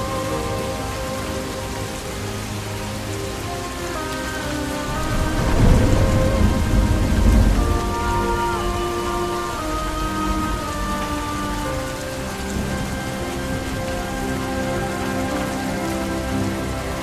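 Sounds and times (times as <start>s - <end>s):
soft background music: 0.0s - 17.0s
steady rain: 0.0s - 17.0s
thunder rolling: 3.8s - 16.2s.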